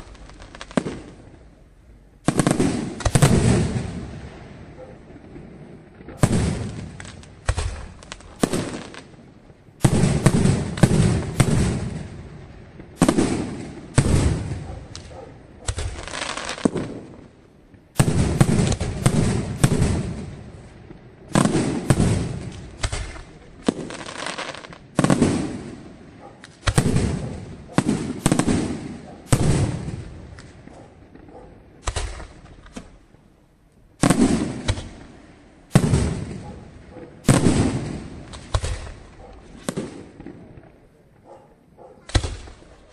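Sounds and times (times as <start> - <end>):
firework shells bursting: 13.0 - 17.2, 21.3 - 25.8.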